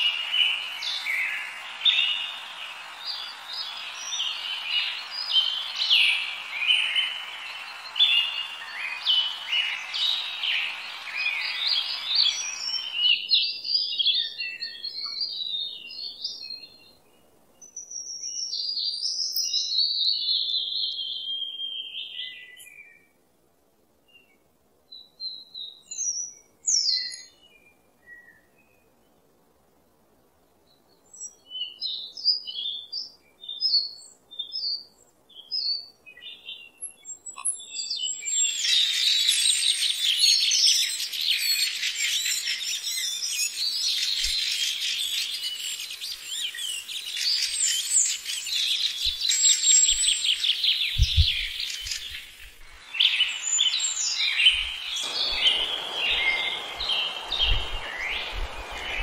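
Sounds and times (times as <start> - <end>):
small birds chirping and trilling: 0.0 - 23.0, 30.7 - 59.0
rushing noise: 52.6 - 59.0.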